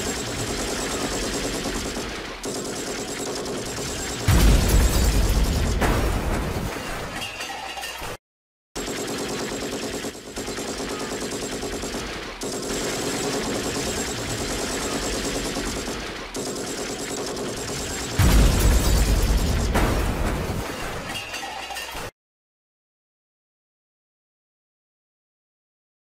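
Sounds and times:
machine-gun fire: 0.0s - 6.6s, 8.8s - 20.6s.

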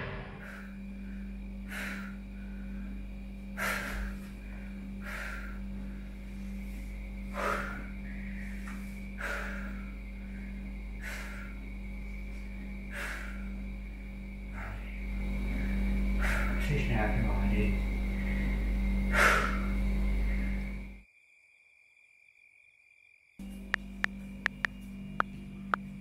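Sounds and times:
steady hum: 0.0s - 21.0s, 23.4s - 26.0s
man breathing heavily: 0.3s - 16.8s, 18.0s - 20.9s.

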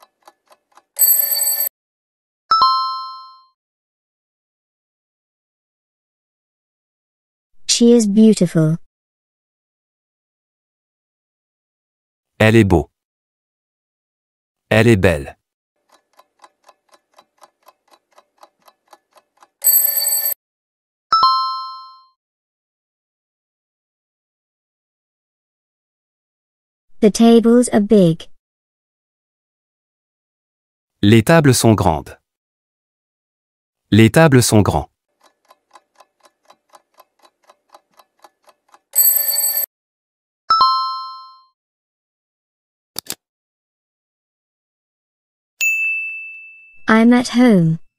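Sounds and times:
faint clock ticking: 0.0s - 1.6s, 15.8s - 20.4s, 34.7s - 39.6s
alarm clock ringing: 1.0s - 1.7s, 19.6s - 20.4s, 39.0s - 39.7s.

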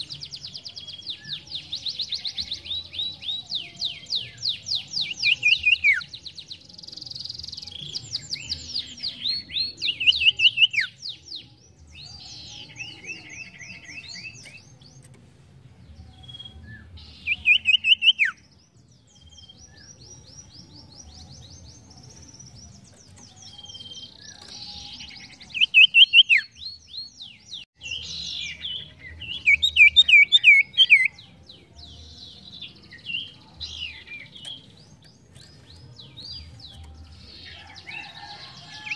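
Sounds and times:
songbird trills and whistles: 0.0s - 14.8s, 16.0s - 31.2s.

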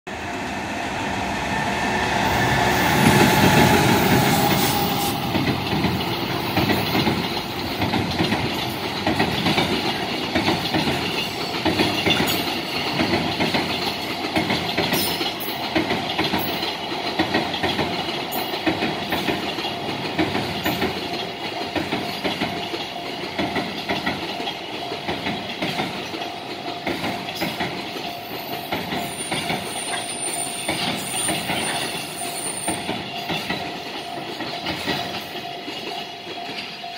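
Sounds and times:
freight train passing: 0.1s - 36.9s
wagons clattering over rail joints: 3.1s - 36.9s.

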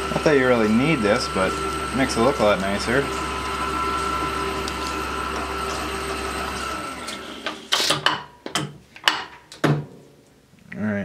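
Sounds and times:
milling machine spindle whining: 0.0s - 7.7s.

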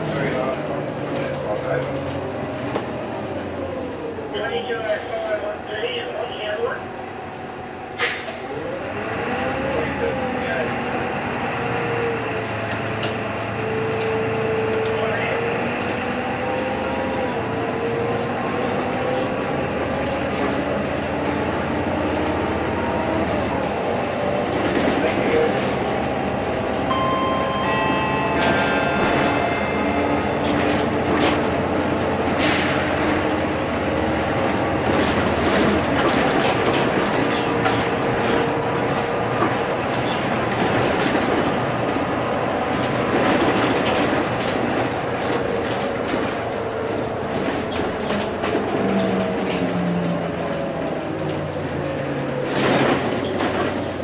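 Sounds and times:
bus engine and road noise: 0.0s - 54.0s
high electronic tone: 26.9s - 31.0s.

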